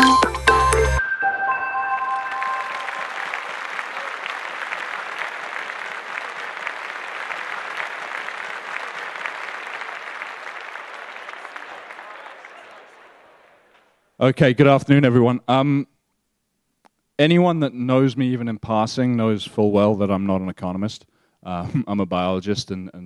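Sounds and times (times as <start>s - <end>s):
audience applauding: 1.9s - 14.0s.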